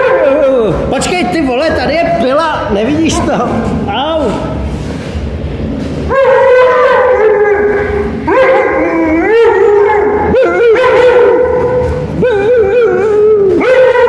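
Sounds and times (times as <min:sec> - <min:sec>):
dog howling: 0:00.0 - 0:00.7, 0:06.1 - 0:14.0.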